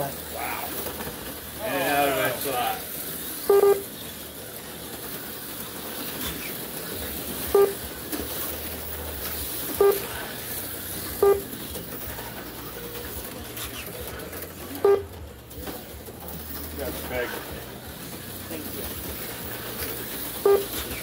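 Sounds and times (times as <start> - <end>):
slot cars running: 0.0 - 21.0
short low electronic beeps: 3.5 - 3.8, 7.5 - 7.8, 9.8 - 10.1, 11.2 - 11.5, 14.8 - 15.1, 20.4 - 20.8.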